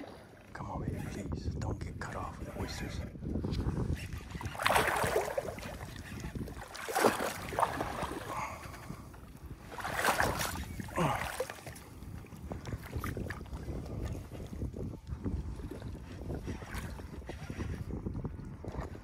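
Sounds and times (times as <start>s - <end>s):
wind rumble on microphone: 0.0s - 19.0s
water splashing: 4.3s - 8.7s, 9.6s - 11.9s.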